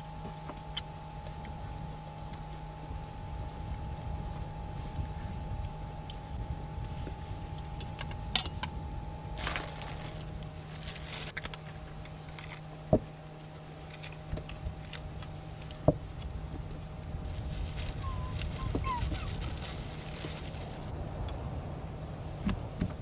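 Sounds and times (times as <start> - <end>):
low hum: 0.0 - 23.0.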